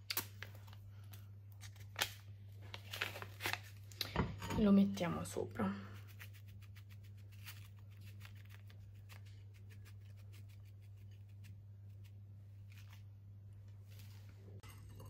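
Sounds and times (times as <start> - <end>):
sugar sachet shaken over cake: 5.8 - 13.0.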